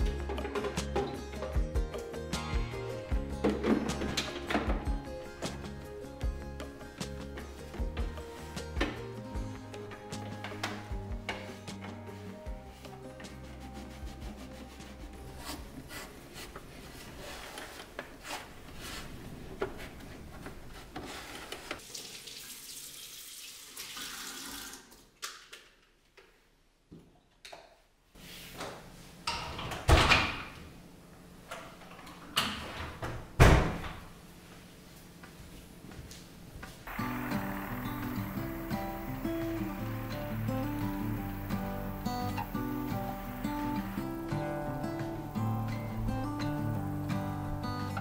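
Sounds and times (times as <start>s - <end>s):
tap water running: 21.8s - 25.1s, 36.9s - 47.1s.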